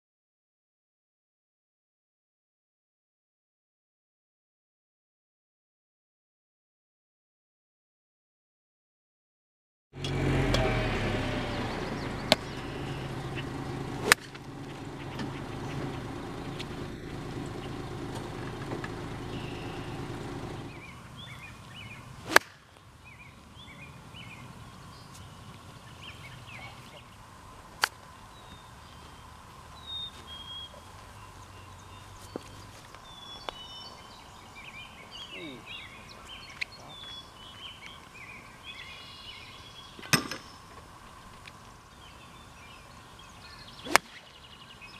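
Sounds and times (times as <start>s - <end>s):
steady low hum: 10.0s - 36.2s
birds chirping: 10.0s - 44.9s
golf clubs striking balls: 12.0s - 20.7s, 22.2s - 22.6s, 40.0s - 40.9s, 43.8s - 44.3s.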